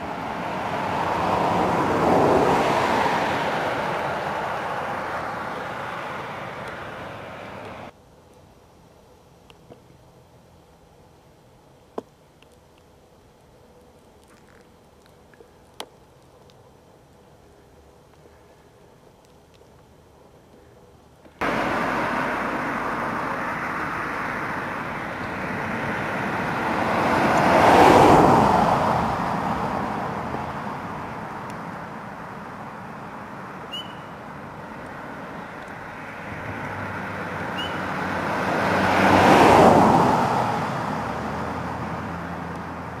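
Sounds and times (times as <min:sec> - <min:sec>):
vehicles passing: 0:00.0 - 0:08.0, 0:09.4 - 0:43.0
steady background hiss: 0:03.4 - 0:27.2
faint high chirps: 0:33.7 - 0:34.2, 0:37.6 - 0:37.9.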